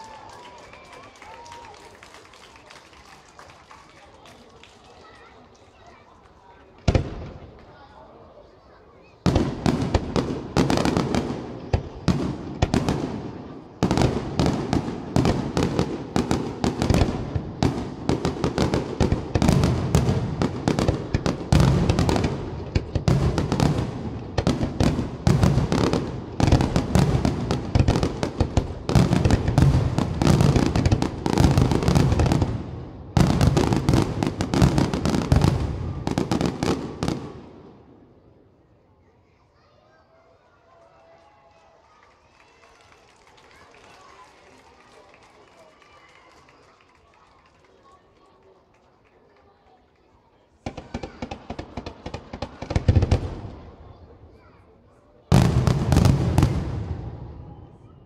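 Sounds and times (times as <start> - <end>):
fireworks bursting and crackling: 6.7 - 7.8, 9.2 - 37.9, 50.6 - 53.8, 55.3 - 57.9.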